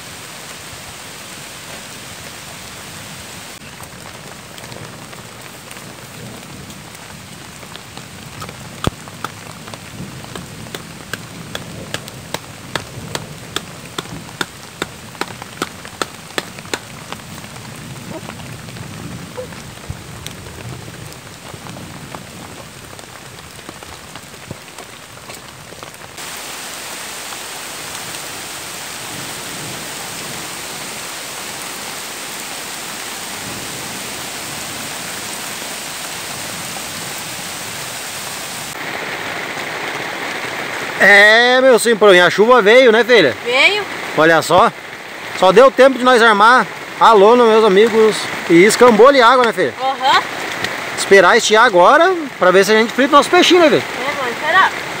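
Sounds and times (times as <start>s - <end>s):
heavy rain on river: 0.0s - 55.0s
rain falling: 0.0s - 55.0s
tent stake being hammered: 8.4s - 9.5s, 10.2s - 17.2s.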